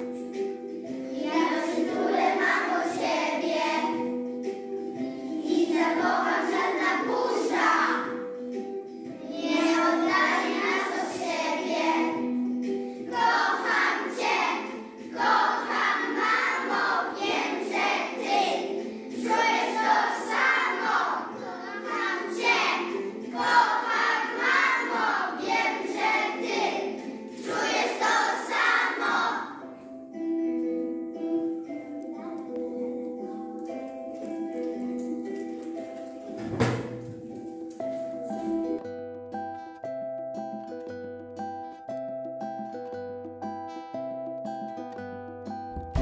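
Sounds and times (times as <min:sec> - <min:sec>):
children singing together: 0:00.0 - 0:34.8
instrumental backing track: 0:00.0 - 0:46.0.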